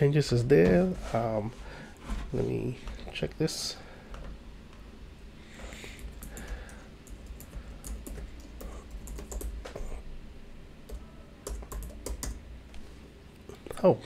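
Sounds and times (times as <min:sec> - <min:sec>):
computer keyboard typing: 0:06.0 - 0:10.0, 0:10.9 - 0:12.4.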